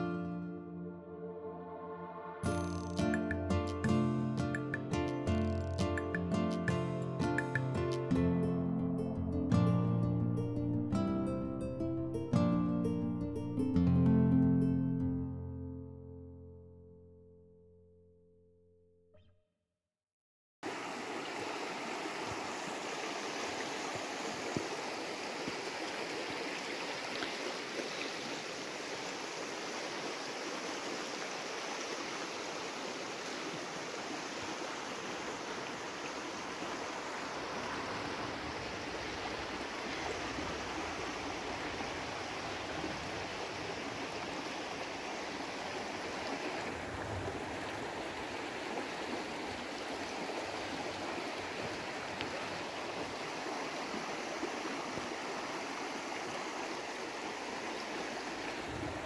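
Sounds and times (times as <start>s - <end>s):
river rushing over stones: 20.6s - 59.0s.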